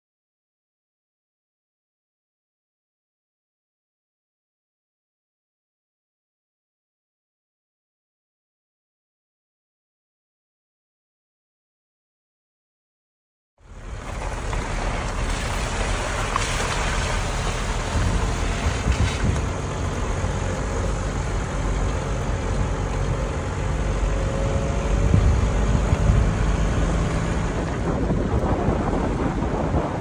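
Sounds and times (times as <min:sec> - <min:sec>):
vehicle rumbling on dirt road: 0:13.6 - 0:30.0.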